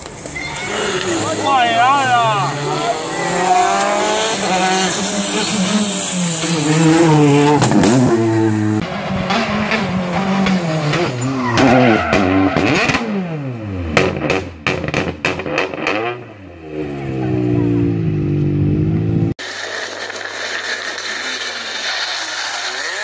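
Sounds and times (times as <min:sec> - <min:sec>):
rally car engine revving: 0:00.8 - 0:19.4
exhaust cracks: 0:19.2 - 0:23.0.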